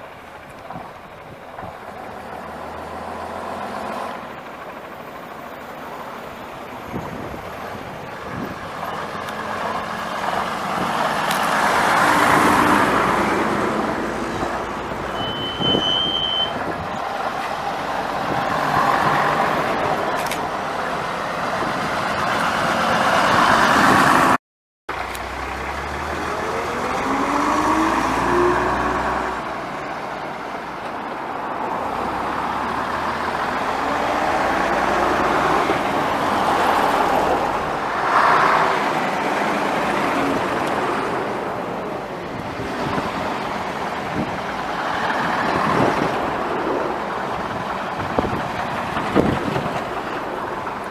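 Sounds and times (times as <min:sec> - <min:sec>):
bus accelerating through gears: 0:00.0 - 0:50.9
buses driving past: 0:00.0 - 0:50.9.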